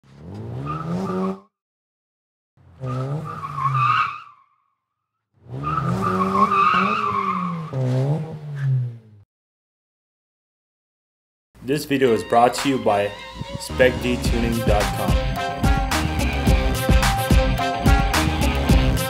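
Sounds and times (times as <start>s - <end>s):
car engine revving: 0.0s - 1.4s, 2.6s - 3.9s, 5.4s - 9.2s, 13.3s - 19.0s
tyres squealing: 5.6s - 8.8s.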